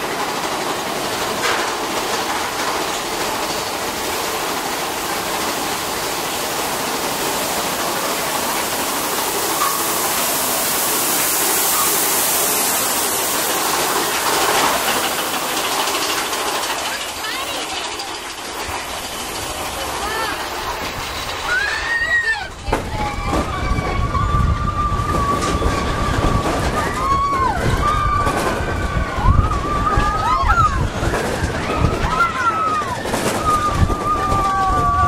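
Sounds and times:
roller coaster rumble and clatter: 0.0 - 35.0
sharp metal clanks: 9.6 - 10.4.

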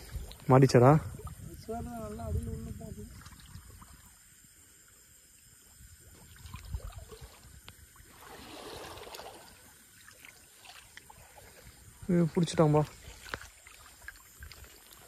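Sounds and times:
water sloshing: 0.0 - 5.0, 5.7 - 15.0
soft swishing splash: 6.0 - 15.0.

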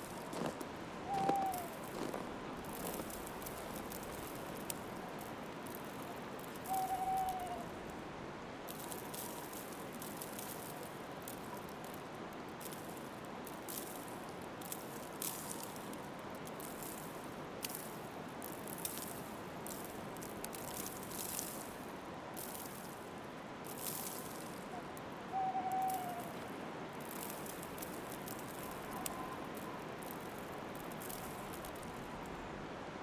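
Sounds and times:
footsteps crunching through snow: 0.0 - 6.6
wintry outdoor hiss: 0.0 - 33.0.

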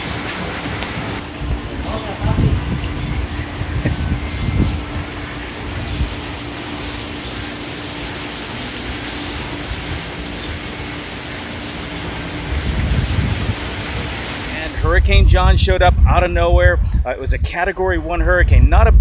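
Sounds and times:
wind gusts buffeting microphone: 0.0 - 6.6, 12.1 - 19.0
storm wind: 0.0 - 6.8, 12.0 - 19.0
rain: 0.0 - 14.8.

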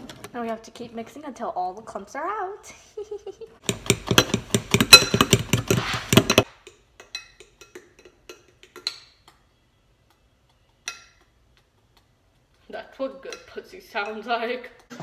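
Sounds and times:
whisk beating batter in bowl: 3.6 - 6.5.

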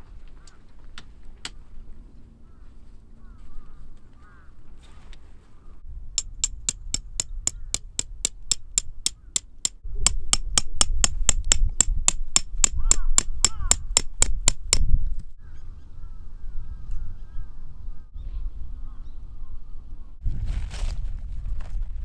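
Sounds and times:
hammer striking metal tent stake: 6.2 - 14.9.

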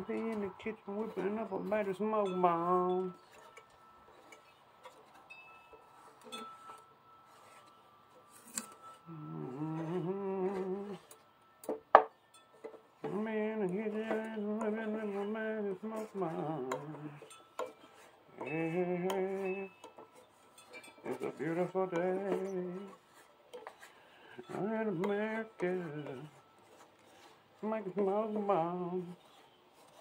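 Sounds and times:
man singing wordless tune: 0.0 - 3.2, 9.0 - 11.2, 13.0 - 17.3, 18.3 - 19.8, 21.0 - 23.1, 24.3 - 26.4, 27.6 - 29.2
wooden spoon scraping thick paste: 0.1 - 11.3, 12.5 - 30.0.

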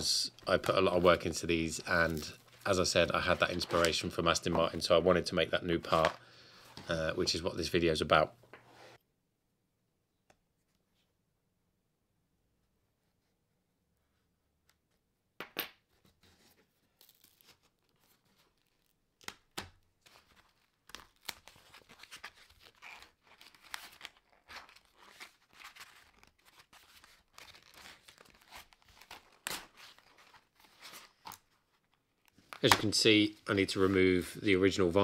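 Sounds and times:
vinyl tearing crackle: 1.8 - 4.7, 17.0 - 33.2.

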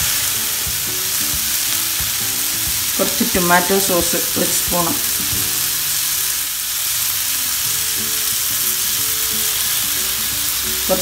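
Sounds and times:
onion and tomato sizzling in oil: 0.0 - 11.0
soft background music: 0.0 - 11.0.

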